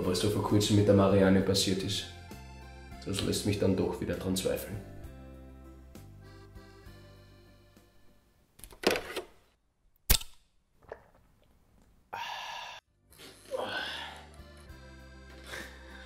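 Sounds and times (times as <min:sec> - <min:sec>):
loud sharp click: 0:10.1 - 0:10.5.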